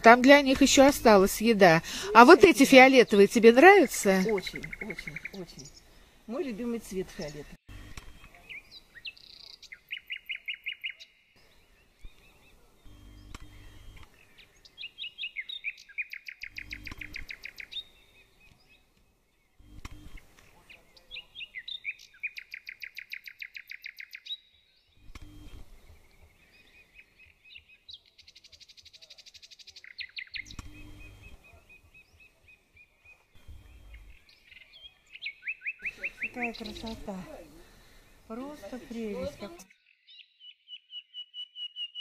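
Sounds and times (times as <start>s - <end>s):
buzzy bird trill: 0.0s - 5.8s, 14.8s - 18.0s, 29.8s - 31.6s, 33.4s - 37.3s
songbirds singing: 0.0s - 42.0s.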